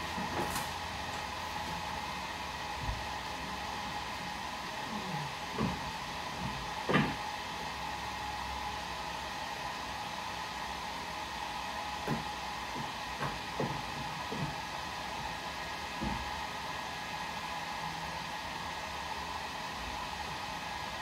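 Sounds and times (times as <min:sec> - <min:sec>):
fan-like whirring hiss: 0:00.0 - 0:21.0
knocks on wooden bed platform: 0:06.4 - 0:07.2.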